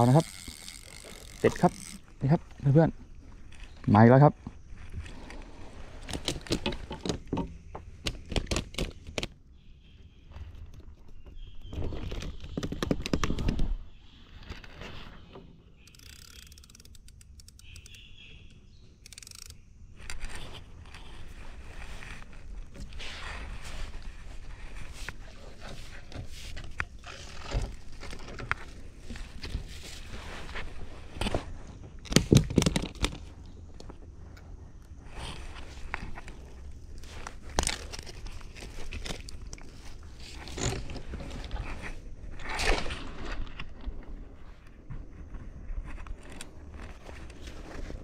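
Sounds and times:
fishing reel clicking: 0.0 - 2.0, 15.8 - 18.1, 19.0 - 19.6
crackly rustling of net: 20.0 - 31.7, 35.1 - 44.8.

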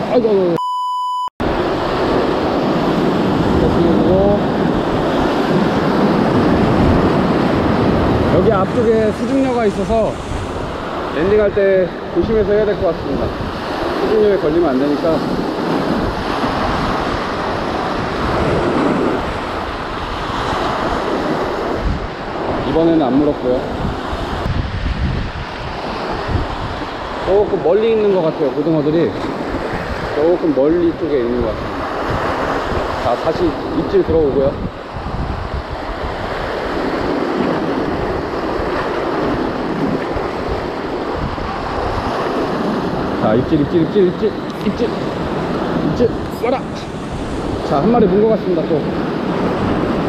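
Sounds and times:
wind buffeting microphone: 1.4 - 50.0
waves breaking against rocks: 1.5 - 24.5.

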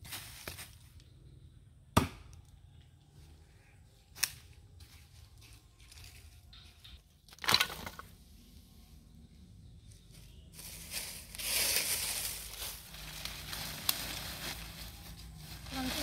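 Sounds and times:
leaves crackling and rustling: 0.0 - 1.0, 10.1 - 16.0.

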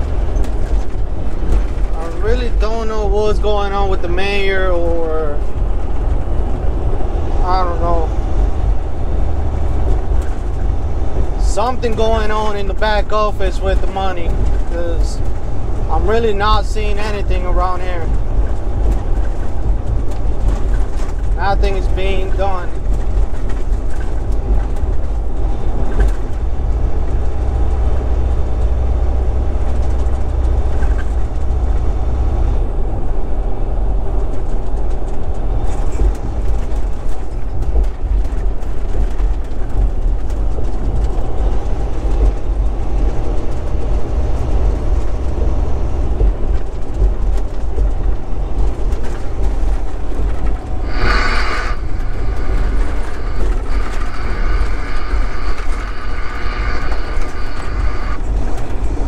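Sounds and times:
rattling over rough pavement: 0.0 - 59.0
truck road noise rumble: 0.0 - 59.0
brief high-pitched hiss: 50.9 - 58.2.

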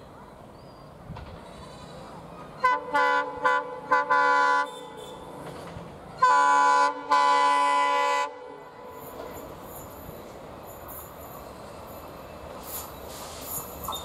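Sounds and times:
faint train rumble: 0.0 - 14.0
locomotive air horn: 2.6 - 5.3, 6.2 - 9.0.

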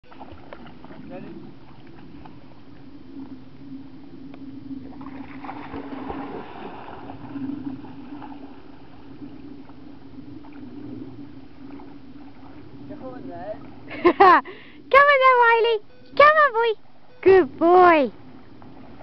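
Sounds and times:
water splashing and gurgling: 0.0 - 14.2, 18.1 - 19.0
steady low hum: 0.0 - 19.0.

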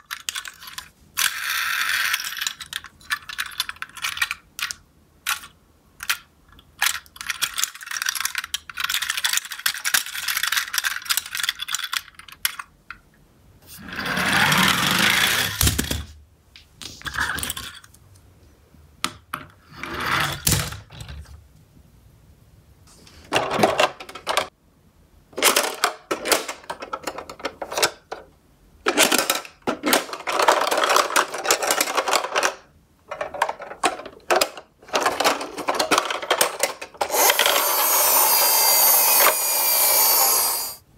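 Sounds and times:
toy trucks clicking and rattling: 0.0 - 13.0, 25.4 - 40.8.

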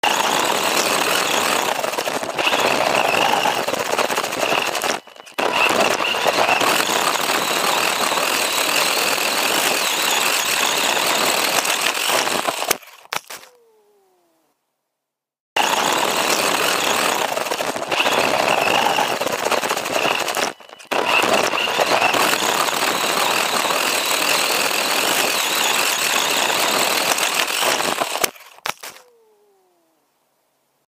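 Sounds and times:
electric motor whining: 0.0 - 13.7, 15.6 - 29.2
clicks: 0.5 - 7.4.

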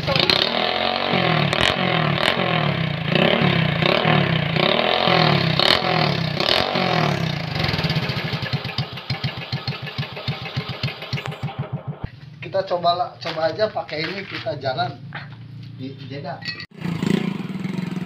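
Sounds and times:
motorcycle engine revving: 0.0 - 13.6, 16.7 - 18.0
loud exhaust pops at idle: 8.2 - 12.5.

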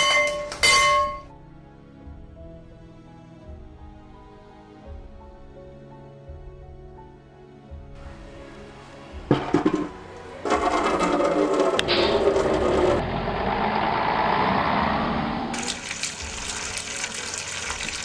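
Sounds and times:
plastic bucket clattering: 9.3 - 13.0
tap water rushing into bucket: 15.6 - 18.0.

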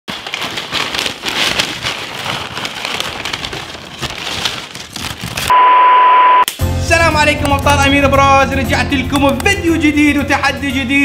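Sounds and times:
paper bag rustling: 0.1 - 5.5.

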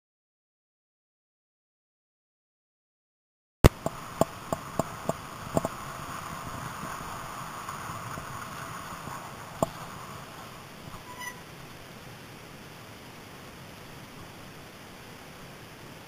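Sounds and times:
wind and tyres noise: 3.6 - 16.0.

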